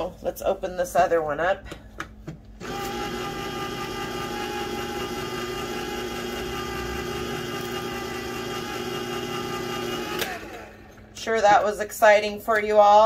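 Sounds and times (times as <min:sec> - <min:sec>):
electric can opener motor hum: 0:02.6 - 0:11.3.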